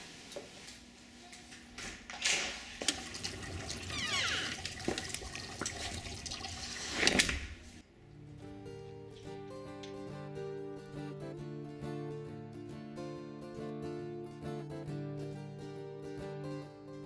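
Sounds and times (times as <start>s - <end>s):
front door opening: 3.8s - 4.8s.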